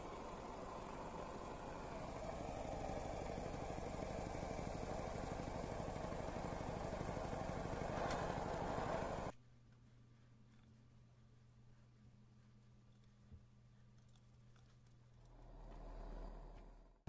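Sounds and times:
hot air engine rattling buzz: 0.0s - 9.3s.

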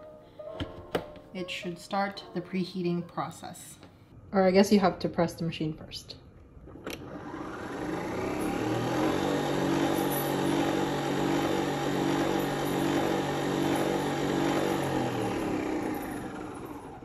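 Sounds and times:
coffee machine humming: 6.7s - 17.0s.

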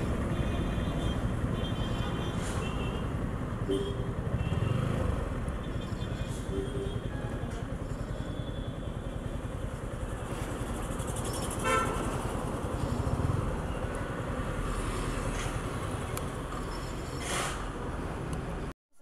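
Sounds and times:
vehicle horn toot: 3.7s - 4.9s, 11.6s - 12.0s
wind and road rumble: 9.9s - 18.7s.

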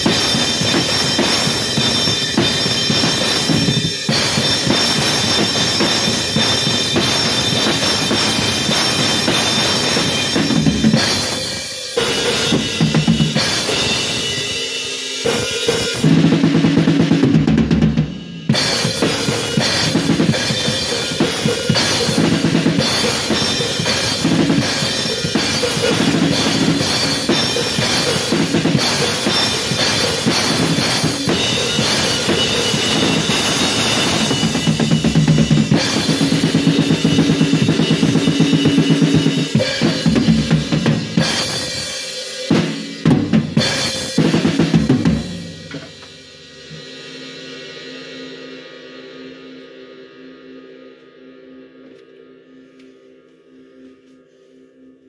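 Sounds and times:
cymbals crashing: 0.0s - 50.8s.

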